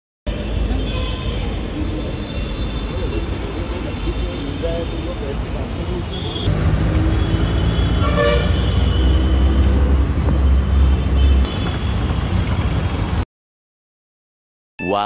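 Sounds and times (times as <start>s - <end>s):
traffic engine rumble: 0.3s - 13.2s
vehicle horn: 6.1s - 10.0s, 10.7s - 12.0s.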